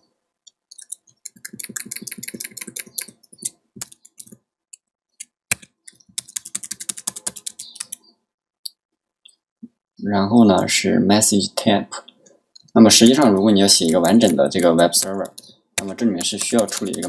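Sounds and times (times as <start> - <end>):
typing on computer keyboard: 0.7 - 4.4, 5.5 - 8.0, 13.3 - 17.0.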